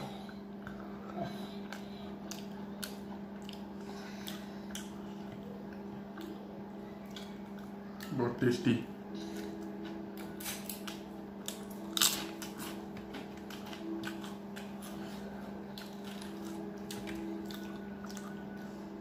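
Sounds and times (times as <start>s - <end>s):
low hum: 0.0s - 19.0s
chewing and mouth noises: 0.6s - 6.4s, 7.0s - 8.1s, 9.2s - 18.8s.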